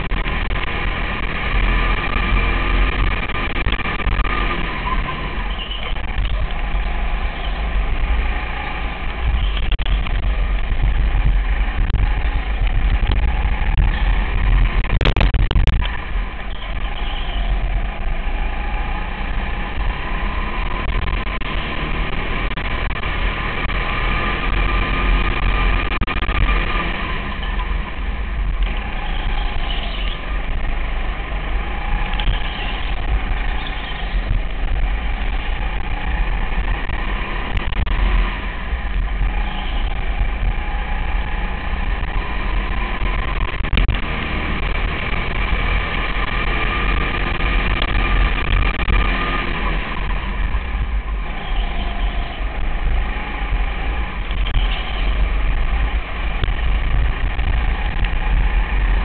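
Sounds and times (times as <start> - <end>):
go-kart engine running hard: 15.8 - 59.0.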